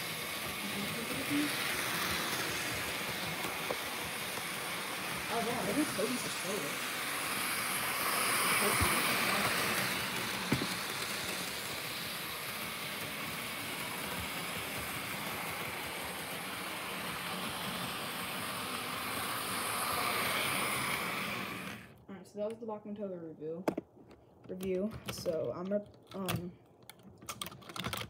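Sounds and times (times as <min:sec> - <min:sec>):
model train motor whirring: 0:00.0 - 0:22.0.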